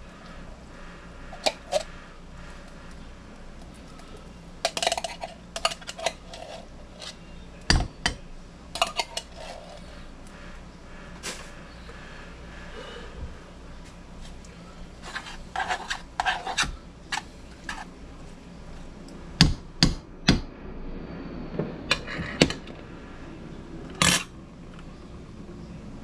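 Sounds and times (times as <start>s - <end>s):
utensil scraping saucepan: 1.3s - 2.0s, 4.6s - 7.4s, 8.8s - 10.1s, 15.0s - 17.9s.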